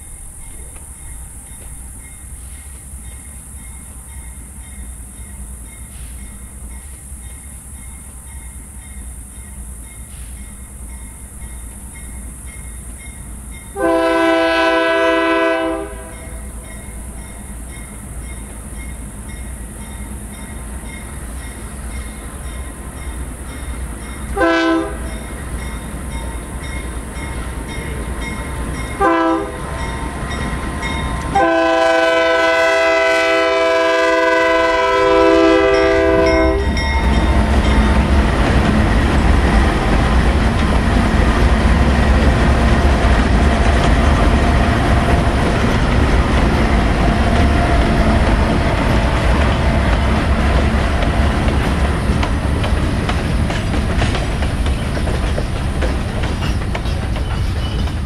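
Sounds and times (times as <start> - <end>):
locomotive rumble: 0.0 - 58.0
locomotive air horn blasts: 13.8 - 16.4, 24.4 - 25.2, 29.0 - 29.8, 31.3 - 36.8.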